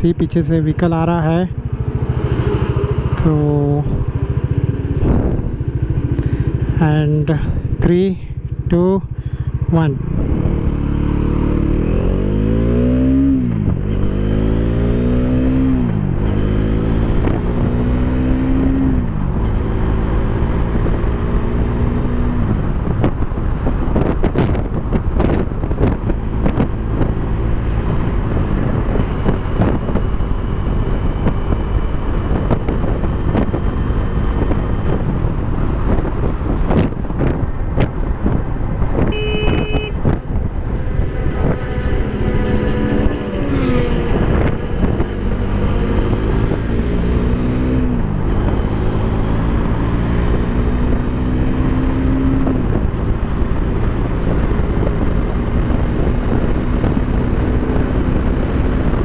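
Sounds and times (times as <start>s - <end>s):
wind rush on microphone: 0.0s - 59.0s
horn toot: 39.1s - 40.0s.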